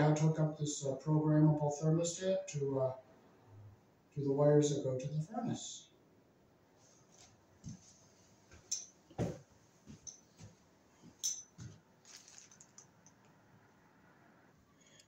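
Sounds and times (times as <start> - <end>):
quiet footsteps: 6.8 - 13.4.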